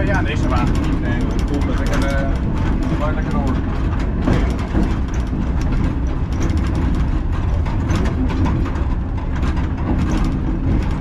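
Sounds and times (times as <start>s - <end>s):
clicks and rattles: 0.0s - 11.0s
tram wheels and motors rumbling: 0.0s - 11.0s.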